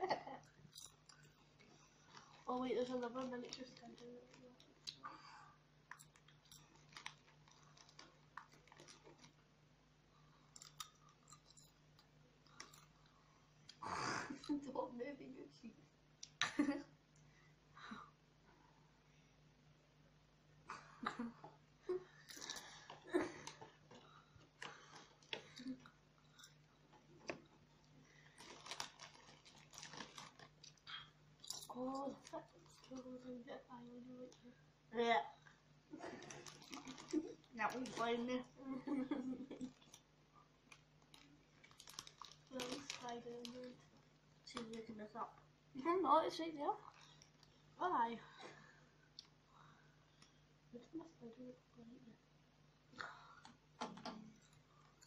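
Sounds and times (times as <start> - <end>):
faint low hum: 0.0 - 55.0.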